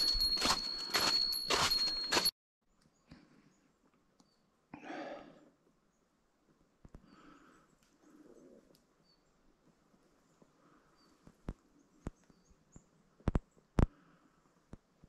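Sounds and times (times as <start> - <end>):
footsteps crunching on snow: 0.0 - 2.3.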